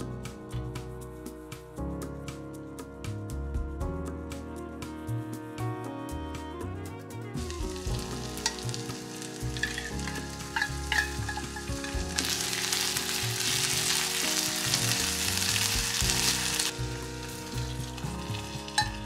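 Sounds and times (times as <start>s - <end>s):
food sizzling in a frying pan: 7.4s - 19.0s.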